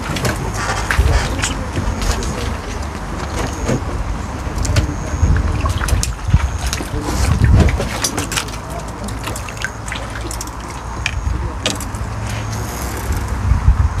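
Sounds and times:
water drips: 0:00.0 - 0:12.2
fish splashing in water: 0:00.0 - 0:13.4
low rumble: 0:09.2 - 0:14.0.

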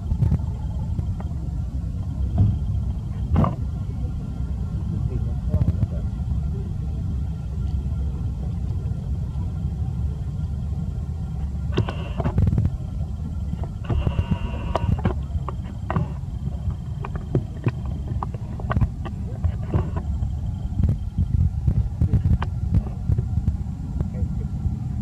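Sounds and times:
low outdoor rumble: 0:00.0 - 0:25.0.

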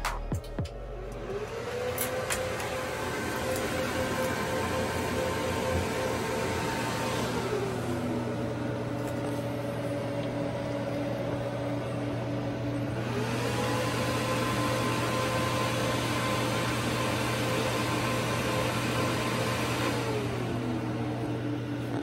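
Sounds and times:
low hum: 0:00.0 - 0:02.5
server cooling fans whirring: 0:00.0 - 0:22.0.

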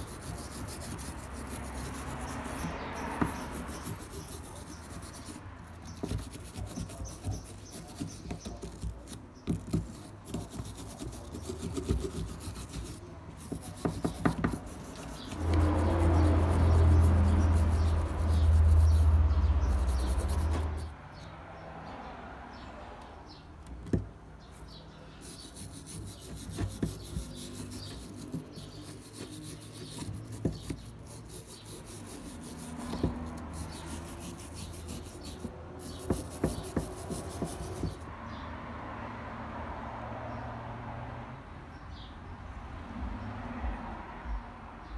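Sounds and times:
steel scraper scraping rusty metal: 0:25.3 - 0:38.0.

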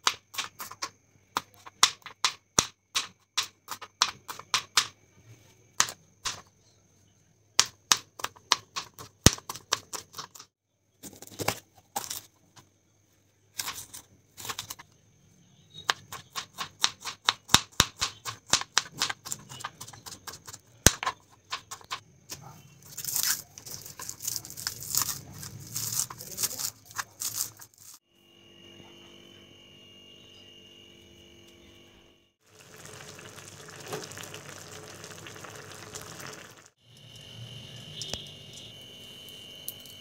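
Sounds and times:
knife chopping on cutting board: 0:15.9 - 0:22.0.

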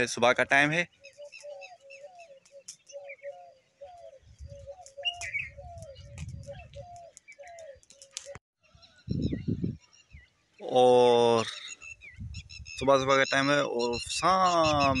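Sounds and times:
faint high bird chirps: 0:00.9 - 0:15.0
bird cooing: 0:01.1 - 0:08.4.

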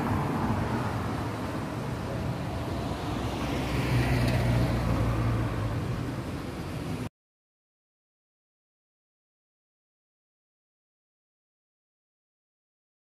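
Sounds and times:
road noise: 0:00.0 - 0:07.1
vehicle engine rumbling: 0:00.0 - 0:07.1.

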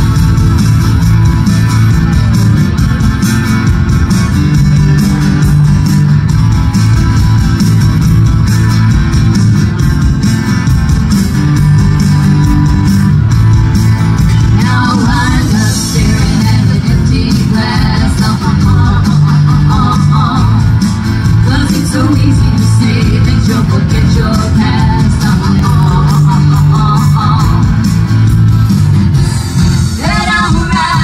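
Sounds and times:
live band playing: 0:00.0 - 0:31.0
person singing: 0:14.2 - 0:20.8, 0:21.4 - 0:27.8, 0:29.9 - 0:31.0.

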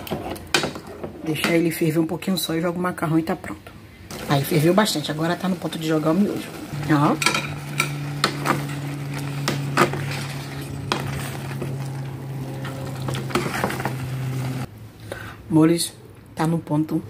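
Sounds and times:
utensil stirring in pan: 0:04.1 - 0:14.7.

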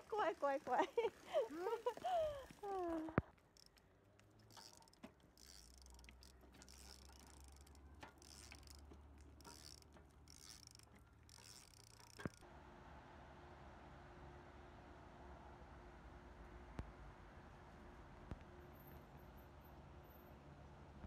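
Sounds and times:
faint clicks and ticks: 0:00.0 - 0:12.5
tricycle rolling on asphalt: 0:00.0 - 0:12.7.

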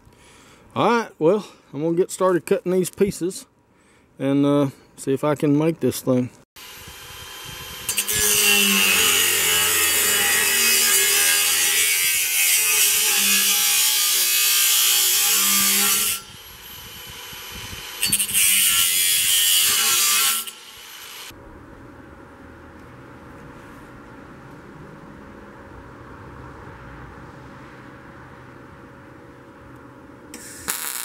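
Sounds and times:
angle grinder cutting steel: 0:06.6 - 0:21.3, 0:30.4 - 0:31.0.

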